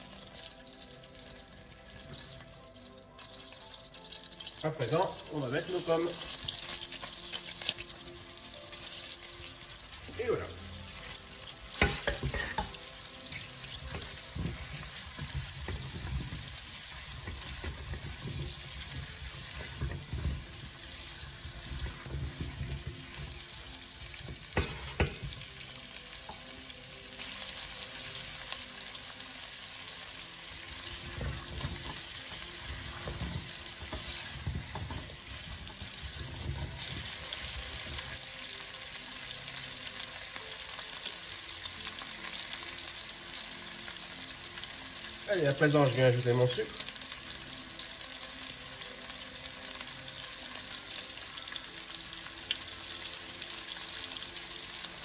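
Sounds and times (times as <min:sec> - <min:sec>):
apple slices sizzling in oil: 0:00.0 - 0:55.0
spatula scraping and knocking pot: 0:11.8 - 0:20.6, 0:24.3 - 0:25.4, 0:32.8 - 0:37.2.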